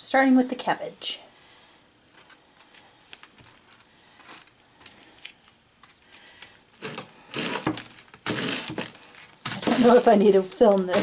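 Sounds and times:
knife crunching through cabbage: 6.8s - 11.0s.

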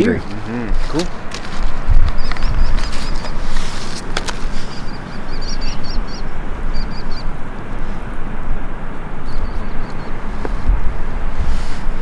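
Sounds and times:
wind buffeting microphone: 0.0s - 12.0s
small bird chirping: 2.0s - 3.5s, 4.5s - 7.4s, 9.2s - 10.2s.

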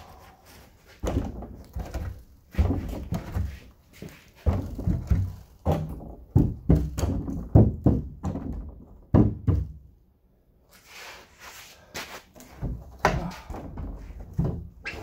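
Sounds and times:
wood slabs knocking together: 1.0s - 9.8s.

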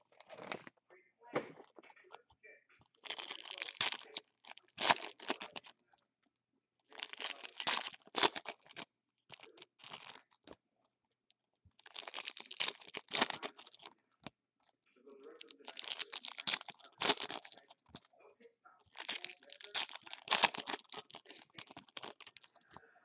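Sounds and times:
foil packs tearing and crinkling: 3.0s - 5.6s, 6.9s - 8.8s, 11.8s - 13.9s, 15.4s - 17.7s, 19.0s - 22.6s.

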